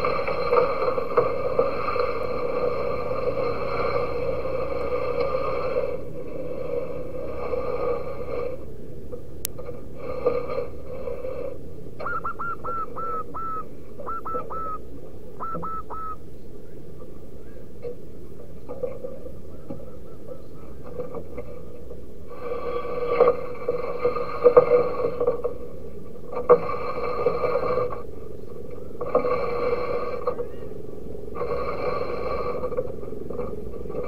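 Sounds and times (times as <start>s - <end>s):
steady hum: 0.0s - 34.0s
dove calling: 11.9s - 17.9s, 18.5s - 21.4s.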